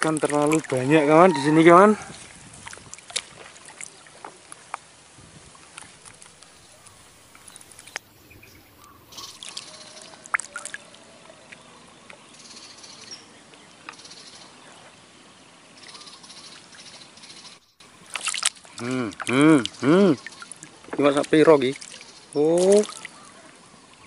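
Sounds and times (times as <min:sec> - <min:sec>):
water trickling and splashing: 0:00.0 - 0:12.4, 0:17.8 - 0:24.0
light clicks and drips: 0:02.6 - 0:04.9, 0:05.6 - 0:08.1, 0:18.0 - 0:23.1.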